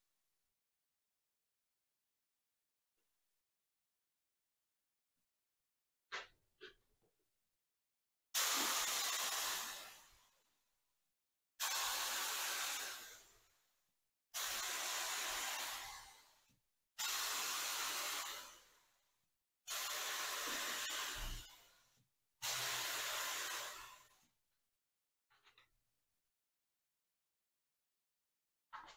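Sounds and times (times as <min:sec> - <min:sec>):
spray gun hissing: 0:08.4 - 0:09.9, 0:11.6 - 0:13.3, 0:14.4 - 0:16.2, 0:17.0 - 0:18.6, 0:19.7 - 0:21.4, 0:22.4 - 0:23.9.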